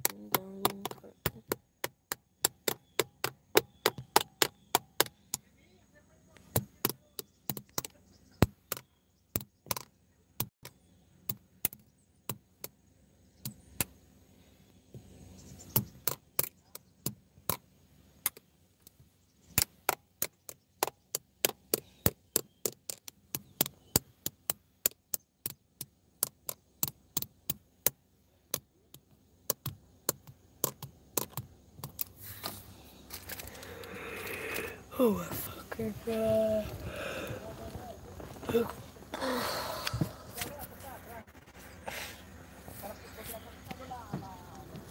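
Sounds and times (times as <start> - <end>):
faint steady hum: 10.0 - 20.1, 25.6 - 44.9
sharp clicks: 18.2 - 34.9.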